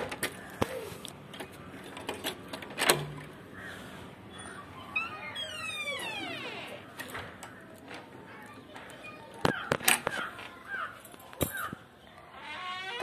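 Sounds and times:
door hinges creaking: 4.4s - 8.1s, 11.6s - 13.0s.

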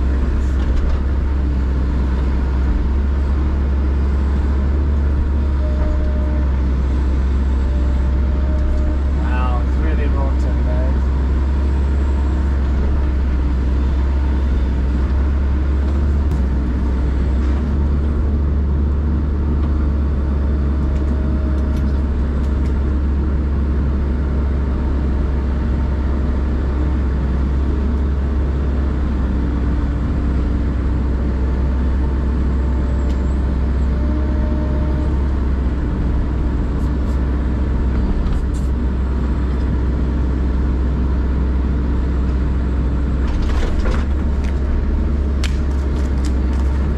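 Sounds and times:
excavator diesel engine drone: 0.0s - 46.9s.

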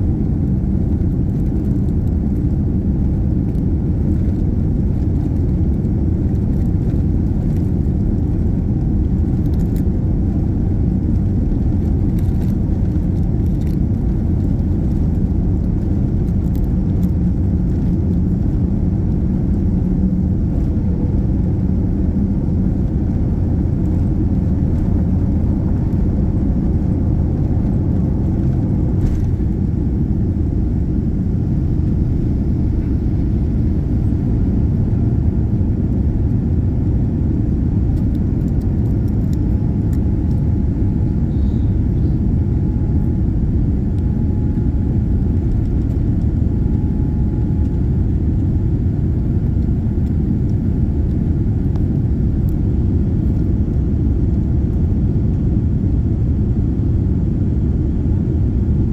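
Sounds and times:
jet engine cabin rumble: 0.0s - 58.9s.

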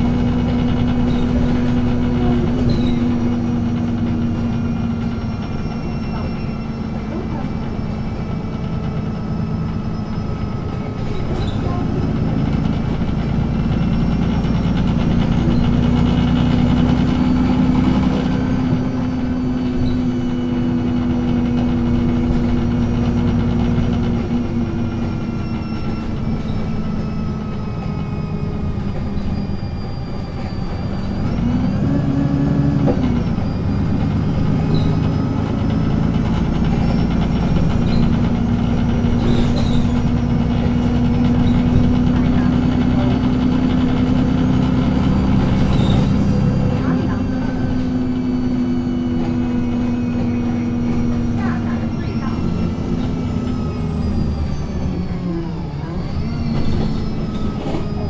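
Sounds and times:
bus diesel engine: 0.0s - 58.0s.

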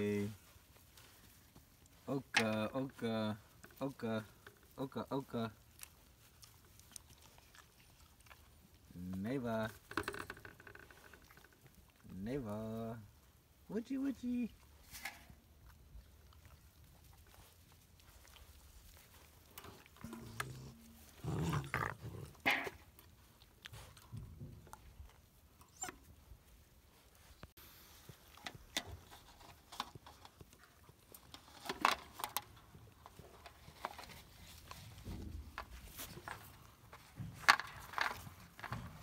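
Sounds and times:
rustling in dry straw: 0.0s - 2.1s.

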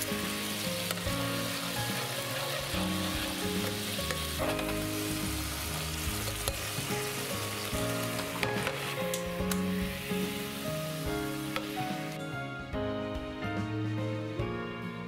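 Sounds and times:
sauce sizzling in a frying pan: 0.0s - 12.2s
metal spoon stirring: 5.8s - 9.0s.

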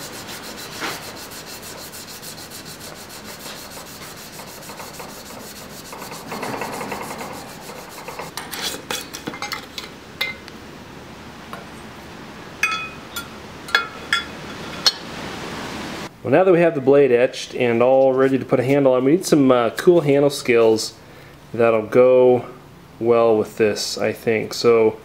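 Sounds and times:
sandpaper rubbing on steel blade: 0.0s - 8.8s
metal clinking on glass jar: 12.6s - 15.0s.

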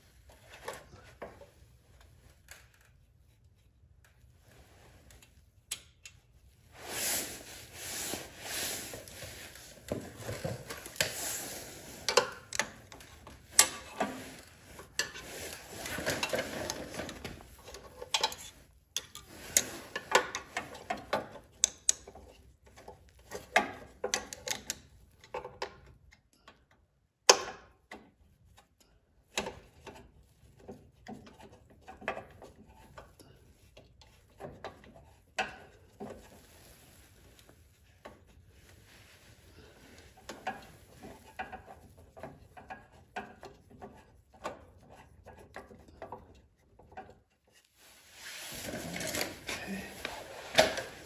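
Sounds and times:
rustling: 35.0s - 42.1s, 47.5s - 51.0s.

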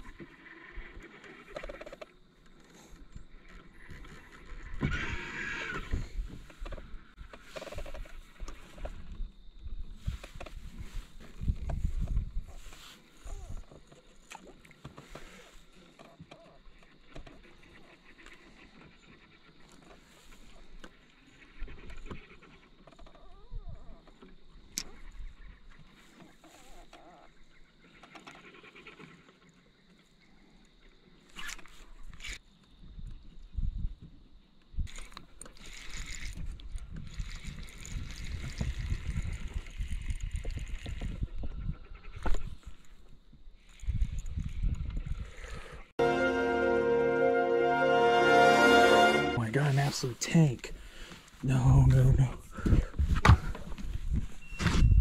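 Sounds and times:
fishing reel clicks and scrapes: 34.9s - 36.4s.

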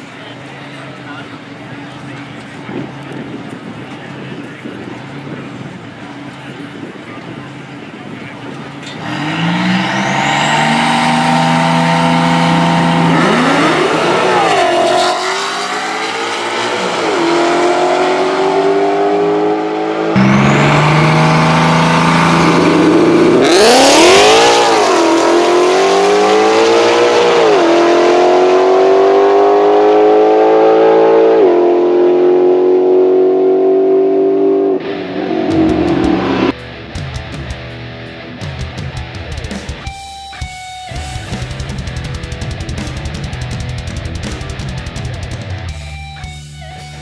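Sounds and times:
second race car engine: 0.0s - 36.6s
drag car engine revving: 8.6s - 36.6s, 41.0s - 46.2s
music: 35.6s - 47.0s.

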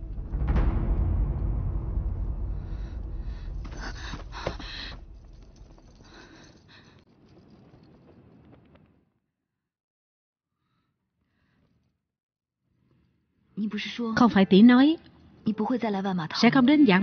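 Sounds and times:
deep drum-like boom: 0.0s - 5.3s.

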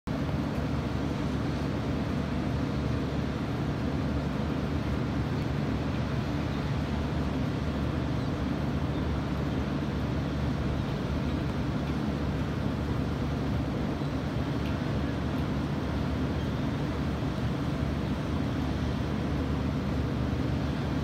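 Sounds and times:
wind: 0.0s - 21.0s
ocean surf: 0.1s - 21.0s.

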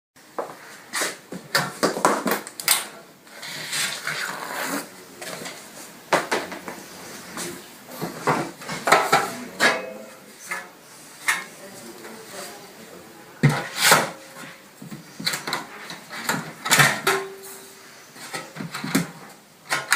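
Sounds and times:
metal cover clattering and scraping: 8.1s - 11.5s, 15.2s - 19.9s.

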